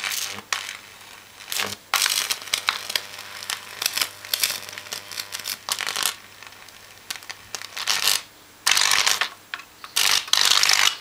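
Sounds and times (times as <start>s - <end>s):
electric arc crackling: 0.0s - 11.0s.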